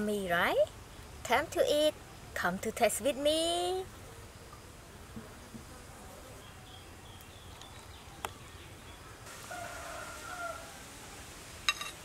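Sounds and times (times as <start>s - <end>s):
rooster crowing: 9.3s - 11.2s.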